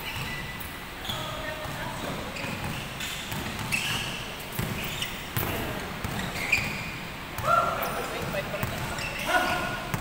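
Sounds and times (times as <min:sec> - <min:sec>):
sneaker squeaks: 0:00.0 - 0:10.0
basketball bouncing on wooden floor: 0:01.6 - 0:07.6, 0:08.2 - 0:09.1.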